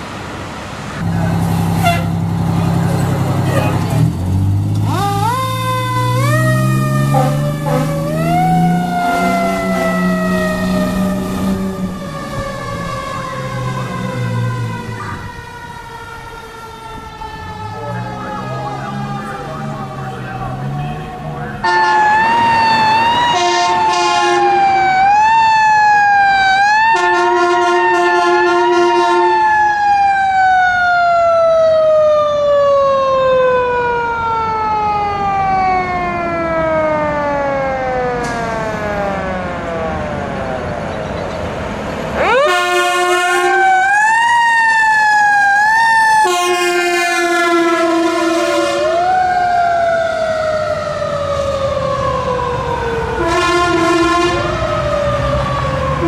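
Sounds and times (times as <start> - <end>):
deep air horn blasts: 1.0 - 2.7, 4.8 - 13.0, 17.9 - 25.0, 26.8 - 29.5, 42.2 - 43.8, 46.2 - 49.2, 53.2 - 54.8
fire engine siren wailing: 1.0 - 56.0.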